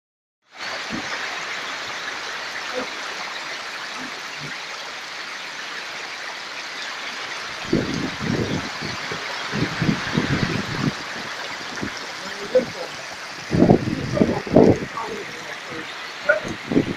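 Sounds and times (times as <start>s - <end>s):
heavy rain hissing: 0.5s - 16.9s
low rumbles: 7.6s - 16.9s.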